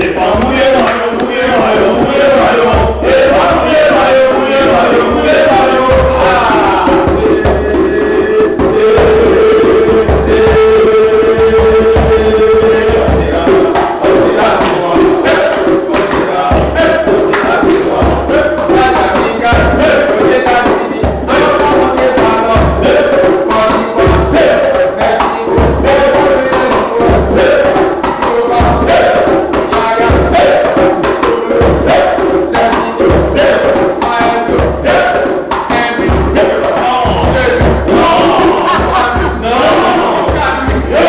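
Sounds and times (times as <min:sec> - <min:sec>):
hand drum beating: 0:00.0 - 0:41.0
men chanting: 0:00.0 - 0:41.0
hand claps: 0:00.3 - 0:01.4, 0:15.4 - 0:16.3, 0:17.2 - 0:18.1.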